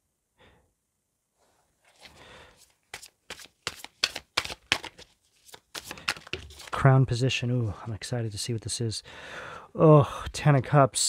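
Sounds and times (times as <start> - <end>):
cards rustling: 1.8 - 6.8.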